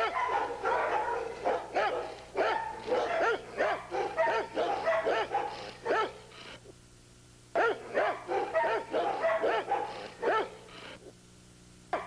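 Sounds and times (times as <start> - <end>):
dogs barking: 0.0 - 6.3, 7.6 - 10.7.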